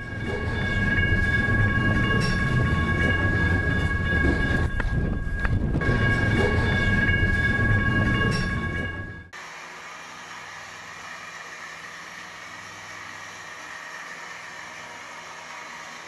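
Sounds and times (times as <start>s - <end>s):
train low rumble: 0.0s - 9.3s
steady high-pitched tone: 0.0s - 9.4s.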